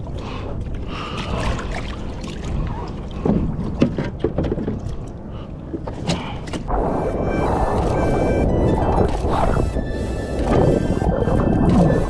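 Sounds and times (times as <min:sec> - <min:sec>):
water moving around kayak: 0:00.0 - 0:12.0
wind buffeting microphone: 0:06.6 - 0:12.0.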